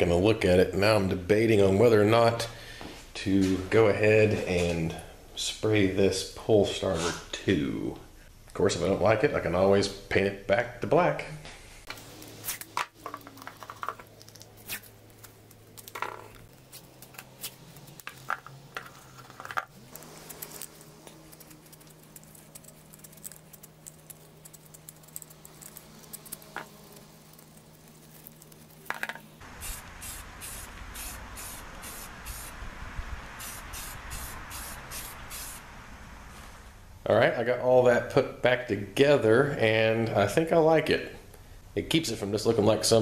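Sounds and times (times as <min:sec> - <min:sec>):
spray paint can rattling: 0:12.5 - 0:14.5, 0:17.8 - 0:32.5
spray hiss: 0:29.4 - 0:32.6, 0:33.2 - 0:35.7.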